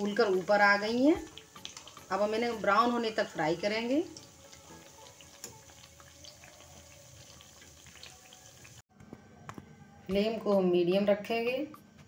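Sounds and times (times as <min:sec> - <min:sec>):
dough sizzling in oil: 0:00.0 - 0:08.9.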